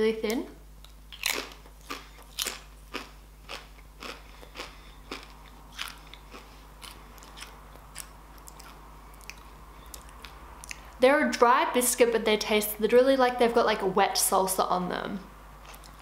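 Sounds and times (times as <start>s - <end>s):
crunchy chips being chewed: 1.1s - 10.8s, 15.6s - 16.0s.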